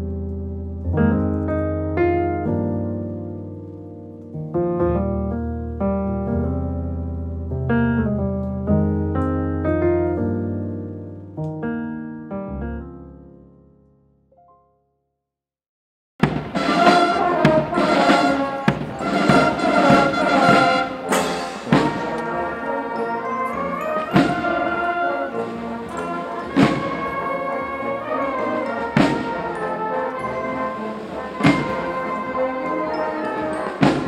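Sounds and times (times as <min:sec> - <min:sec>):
drum beats: 0:16.2 - 0:22.5, 0:24.0 - 0:30.5, 0:31.2 - 0:34.0
brass band music: 0:16.2 - 0:34.0.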